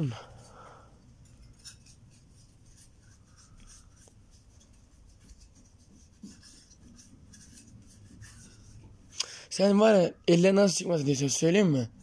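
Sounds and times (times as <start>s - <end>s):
hand scrubbing mirror: 0.0s - 9.1s.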